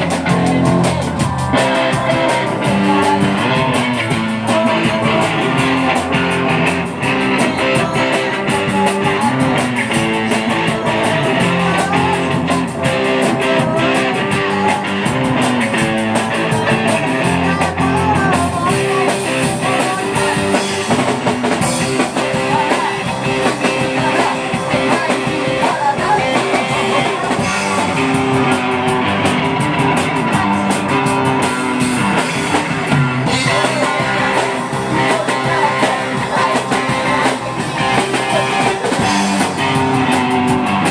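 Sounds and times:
woman singing: 0.0s - 28.9s, 30.0s - 31.4s, 33.2s - 40.2s
drums: 0.0s - 40.9s
electric guitars: 0.0s - 40.9s.

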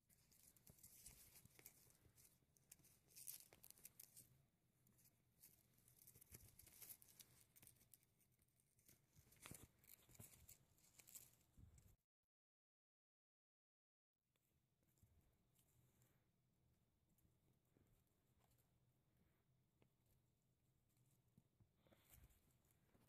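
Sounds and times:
kittens rustling on cloth: 0.0s - 11.9s, 19.8s - 23.0s.

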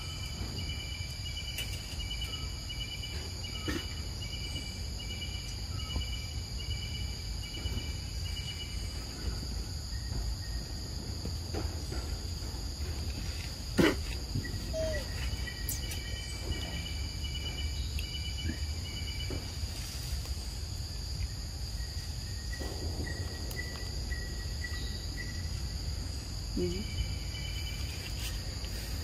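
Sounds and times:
high-pitched insect drone: 14.4s - 20.5s.

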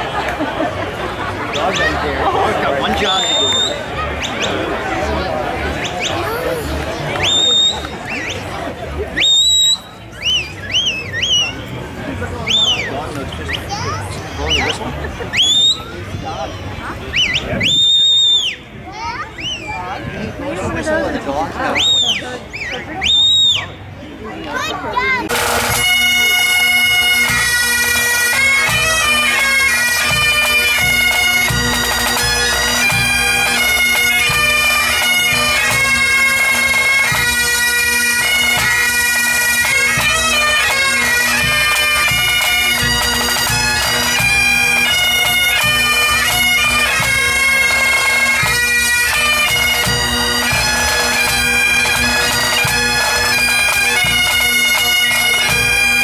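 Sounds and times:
bagpipes playing a tune: 0.0s - 8.6s, 25.3s - 56.0s.

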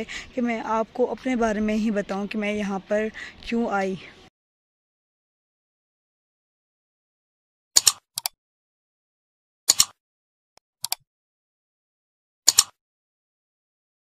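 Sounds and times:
mouse clicks: 7.8s - 8.3s, 10.8s - 11.0s.

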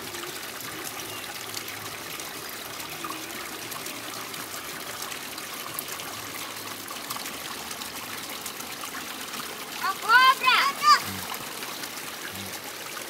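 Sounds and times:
creek water running: 0.0s - 13.0s.

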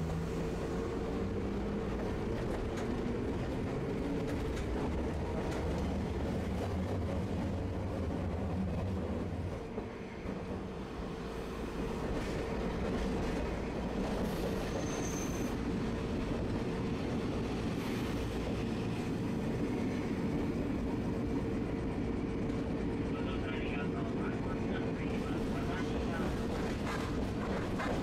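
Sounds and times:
streetcar rolling on track: 0.0s - 28.0s
high wheel squeal: 14.4s - 15.6s.

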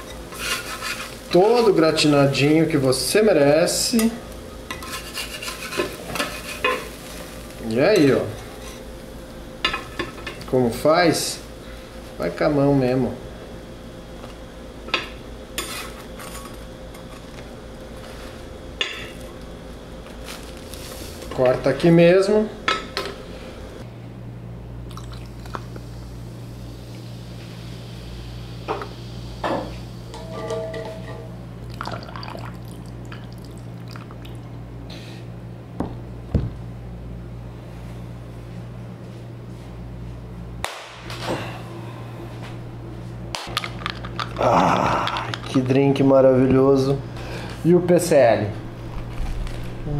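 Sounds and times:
knife scraping on griddle: 0.0s - 1.3s, 4.7s - 6.9s, 15.6s - 16.6s
liquid pouring into glass: 31.7s - 34.4s
low hum: 48.3s - 49.9s.

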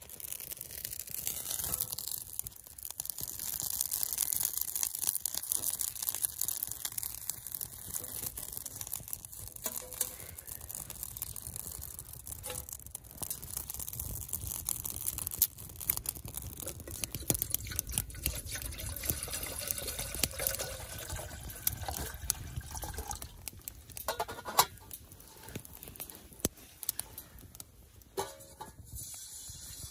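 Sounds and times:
wood fire crackling and snapping: 0.0s - 29.9s.

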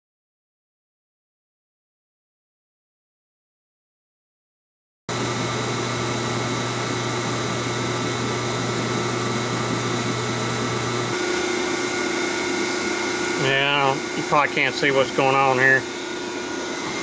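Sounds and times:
electric motor hissing and humming: 5.1s - 17.0s
high machine tone: 5.1s - 17.0s.

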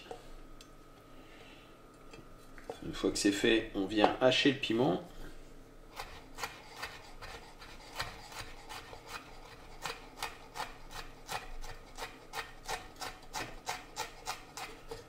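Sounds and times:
knife chopping on wooden board: 6.0s - 15.0s.

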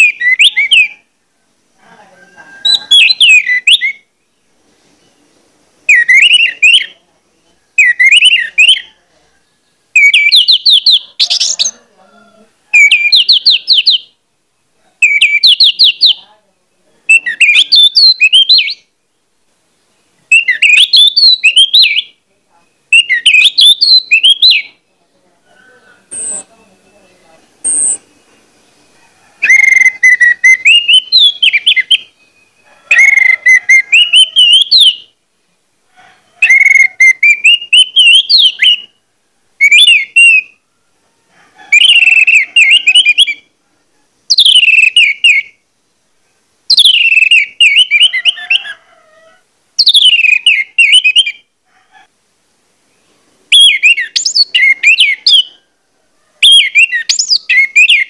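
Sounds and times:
bird singing whistled phrases: 0.0s - 1.0s, 2.6s - 4.1s, 5.9s - 7.0s, 7.8s - 8.9s, 10.0s - 11.7s, 12.8s - 14.1s, 15.0s - 16.2s, 17.1s - 18.8s, 20.3s - 22.2s, 22.9s - 24.8s, 29.4s - 35.1s, 36.4s - 39.0s, 39.6s - 40.6s, 41.8s - 43.4s, 44.3s - 45.6s, 46.7s - 48.6s, 49.8s - 51.4s, 53.5s - 55.5s, 56.4s - 58.0s.

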